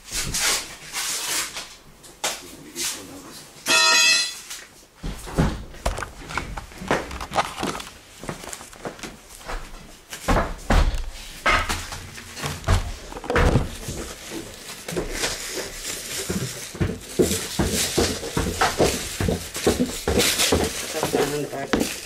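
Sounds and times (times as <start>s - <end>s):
knocks and thuds of handling: 5.0s - 22.0s.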